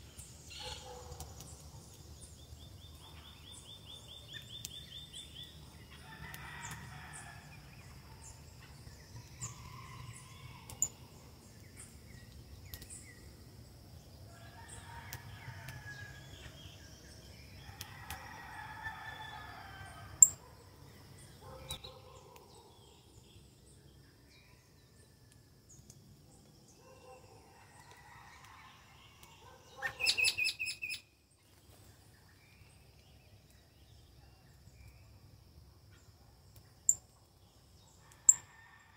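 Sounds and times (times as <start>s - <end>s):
small birds chirping: 0.0s - 6.8s, 7.9s - 18.3s, 25.7s - 35.2s.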